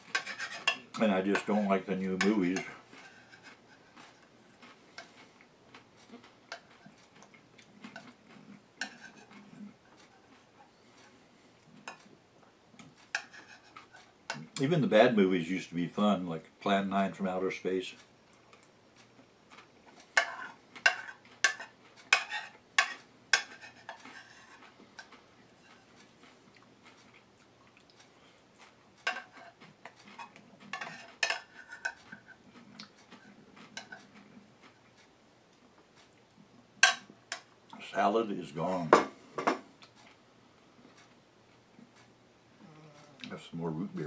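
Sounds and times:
spoon scraping ceramic bowl: 0.0 - 4.3, 8.8 - 10.5, 13.1 - 14.4, 20.2 - 25.9, 30.2 - 32.4.

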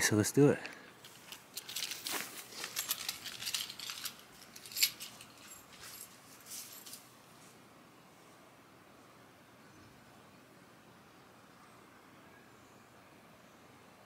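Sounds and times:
footsteps on grass: 1.8 - 2.9.

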